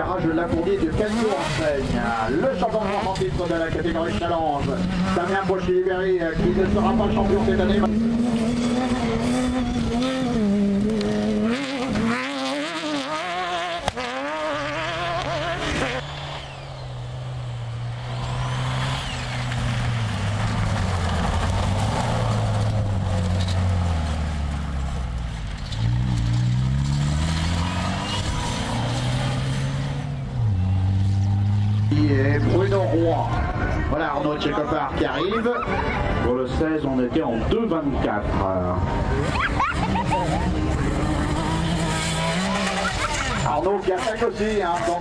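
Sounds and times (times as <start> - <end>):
buggy engine revving: 0.0 - 45.0
rally car engine low note: 0.9 - 33.9.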